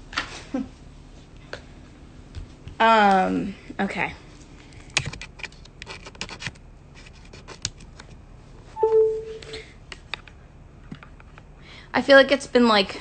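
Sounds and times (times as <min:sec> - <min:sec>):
brief steady tone: 0:08.8 - 0:09.6.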